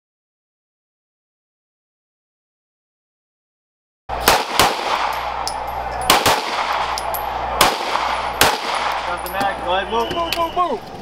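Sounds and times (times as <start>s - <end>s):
pistol shots: 4.1s - 9.5s
steady background noise: 4.1s - 11.0s.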